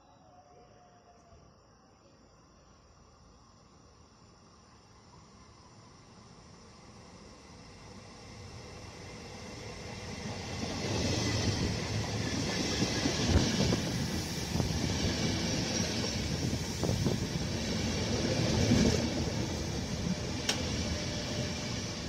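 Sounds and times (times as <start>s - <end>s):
train wheels rumbling on rails: 7.6s - 22.0s.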